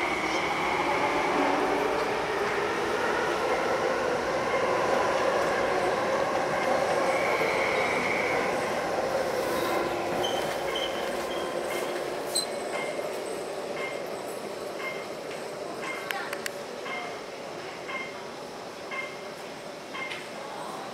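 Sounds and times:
train passing through station: 0.0 - 20.9
high wheel squeal: 10.2 - 12.9.

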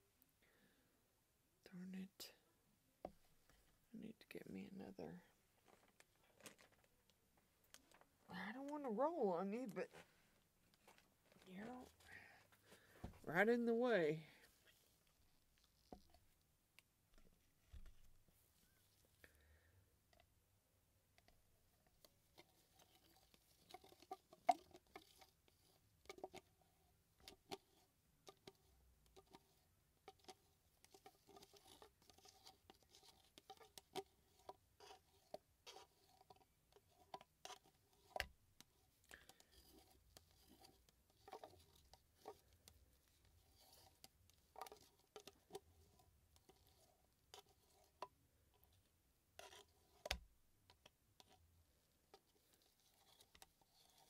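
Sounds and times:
stick scraping a plastic cup: 22.3 - 48.8, 49.4 - 51.5, 52.1 - 54.0.

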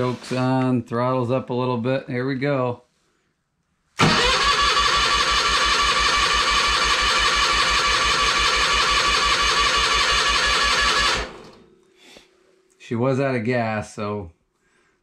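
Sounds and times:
starter cranking engine: 4.0 - 11.6.

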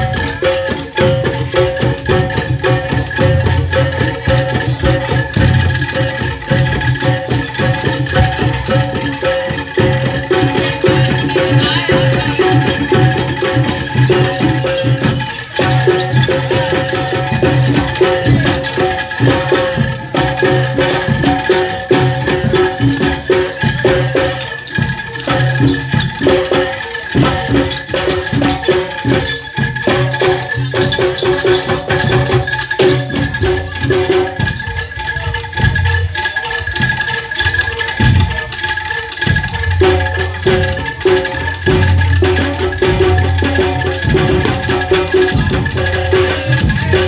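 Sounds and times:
gamelan music with drums: 0.0 - 47.0.

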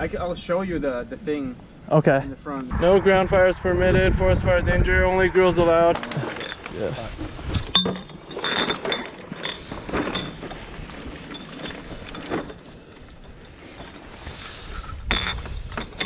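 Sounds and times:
glass bottle clinking: 7.6 - 10.5.

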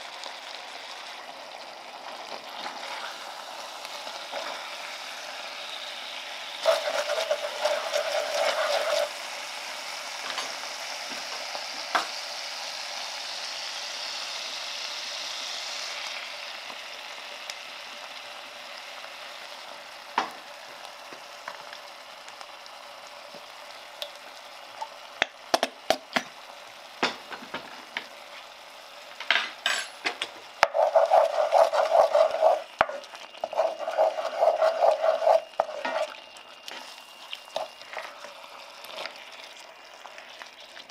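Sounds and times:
meat and onions sizzling in a pot: 0.0 - 40.9
spatula stirring and scraping a pan: 2.6 - 4.9, 6.5 - 9.4, 29.9 - 39.2.

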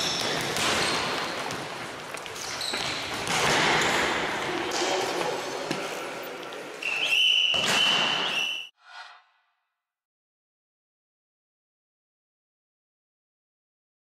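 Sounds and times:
shoes squeaking on floor: 0.0 - 4.2, 5.0 - 8.7
ball kicks and bounces: 0.0 - 6.0.

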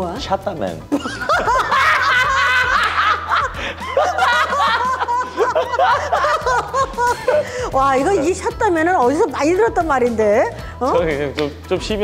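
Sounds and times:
light background music: 0.0 - 12.0
man and woman laughing: 0.9 - 7.8.

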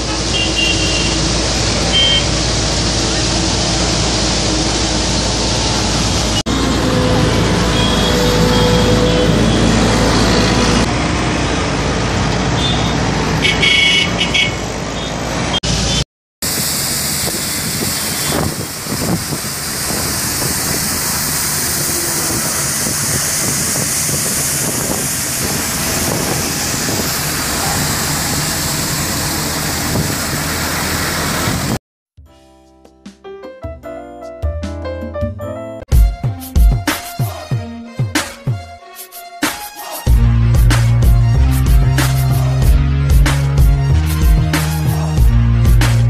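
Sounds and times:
loader engine droning: 0.0 - 31.8
rotary sweeper hissing: 16.5 - 31.3.

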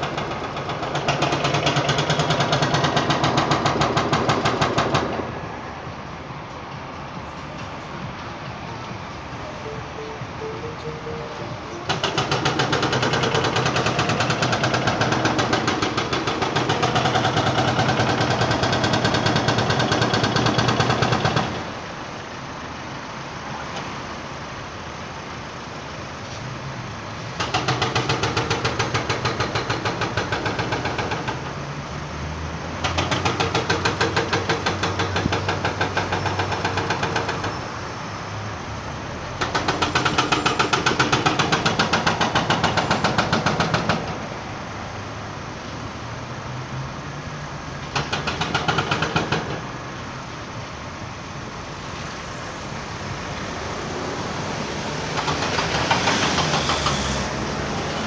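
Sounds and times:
demolition machinery hammering: 0.0 - 5.4, 11.8 - 21.8, 27.4 - 31.5, 32.8 - 37.6, 39.4 - 44.4, 47.9 - 49.7, 54.7 - 57.9.

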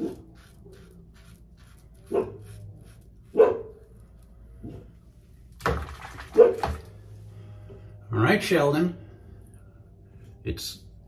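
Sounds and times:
dog barking: 2.1 - 2.5, 3.3 - 3.8, 6.3 - 6.8.

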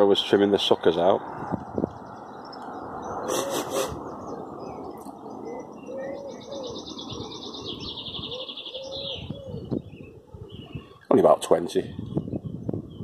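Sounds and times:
songbird rapid high trill: 3.0 - 9.5
pigeon cooing: 3.2 - 4.4, 5.2 - 11.1.

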